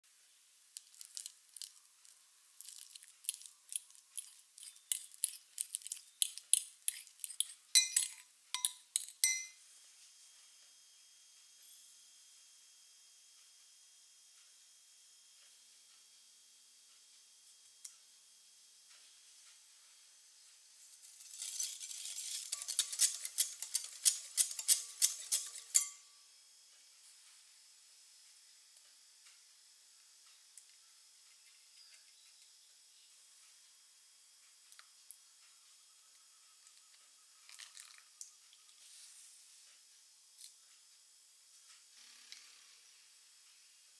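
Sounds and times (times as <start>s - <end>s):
whisk wires clicking on glass: 2.6s - 9.6s
fork clinking against glass bowl: 4.2s - 9.6s, 22.5s - 26.0s
whisk swishing in bowl: 21.5s - 25.8s.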